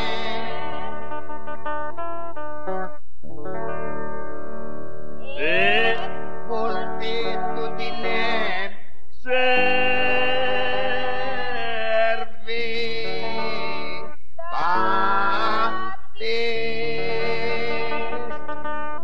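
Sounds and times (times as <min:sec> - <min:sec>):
person chanting: 0:00.0 - 0:01.1, 0:05.2 - 0:18.4.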